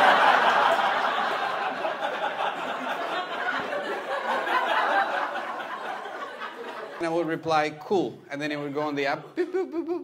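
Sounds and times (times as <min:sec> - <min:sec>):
audience laughing: 0:00.0 - 0:07.3.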